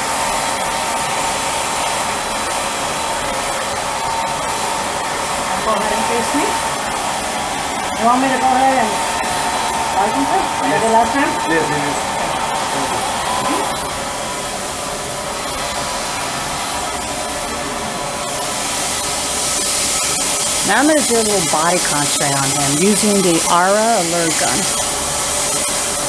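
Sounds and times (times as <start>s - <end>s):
thin steady whine: 0.0s - 26.0s
turbine blower running: 0.0s - 26.0s
air hissing from spray gun: 18.3s - 22.1s, 23.2s - 26.0s.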